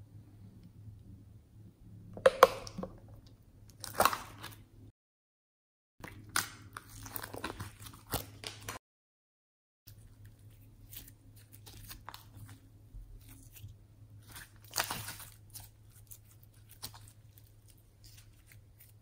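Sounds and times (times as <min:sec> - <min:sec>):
slime crackling and popping: 0:14.3 - 0:18.9.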